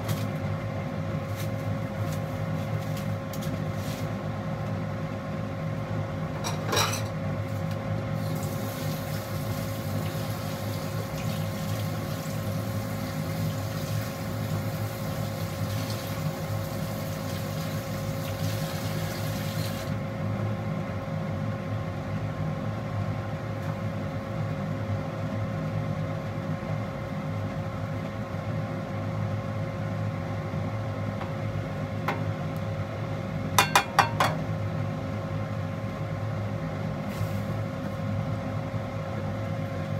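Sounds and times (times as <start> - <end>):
tap water running: 8.2 - 20.0.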